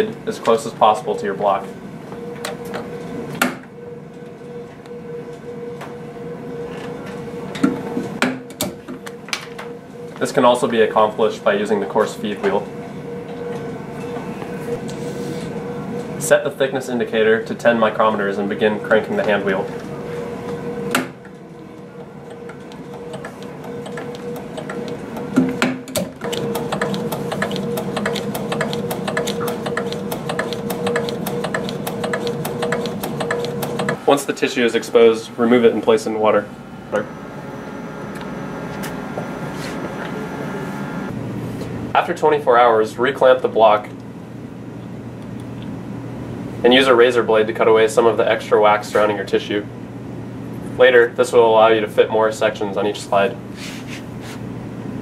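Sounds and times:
steady hum: 0.0s - 55.0s
low hum: 34.0s - 41.9s.

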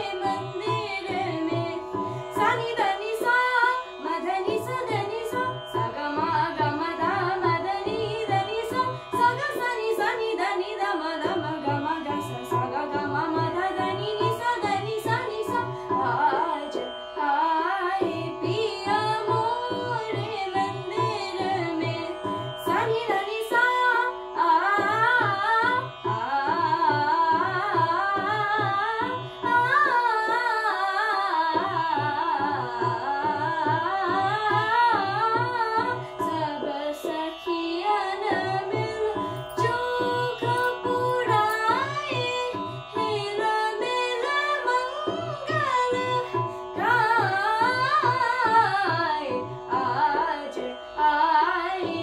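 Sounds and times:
electronic tanpura drone: 0.0s - 52.0s
electronic tabla beat: 38.3s - 44.0s.

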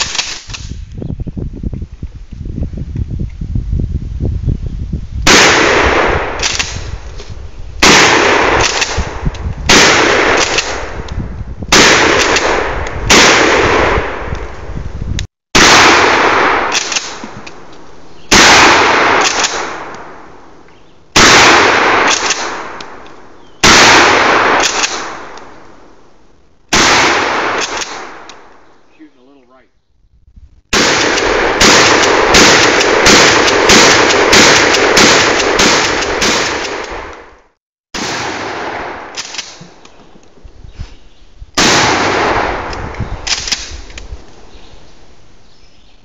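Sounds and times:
loud shotgun shots: 0.0s - 0.8s, 5.2s - 6.9s, 7.8s - 11.0s, 11.7s - 14.3s, 15.6s - 17.4s, 18.3s - 20.3s, 21.2s - 23.0s, 23.6s - 25.4s, 26.7s - 28.5s, 30.7s - 37.2s, 38.0s - 39.8s, 41.6s - 43.9s.

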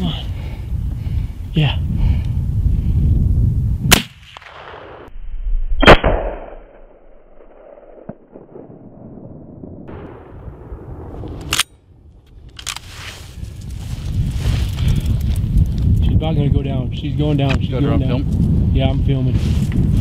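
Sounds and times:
low rumble: 0.0s - 19.2s
rifle shots with echo: 3.9s - 5.1s, 5.8s - 11.7s.

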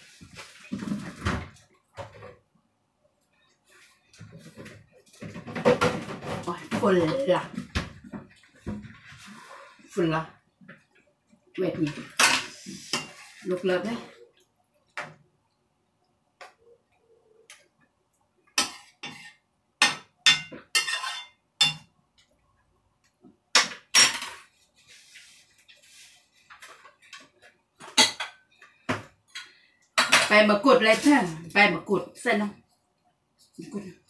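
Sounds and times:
metal spoon scraping frying pan: 12.1s - 13.6s, 18.6s - 19.4s, 20.3s - 21.8s.

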